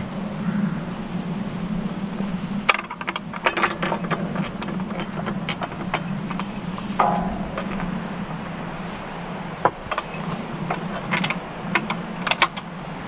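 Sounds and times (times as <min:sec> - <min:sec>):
low hum: 0:07.0 - 0:09.3.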